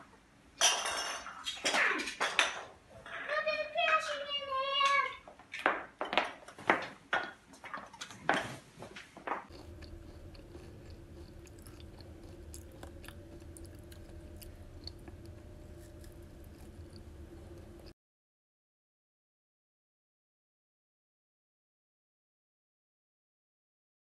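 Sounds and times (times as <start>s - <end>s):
low room hum: 7.6s - 18.0s
child crunching a biscuit: 9.5s - 17.9s.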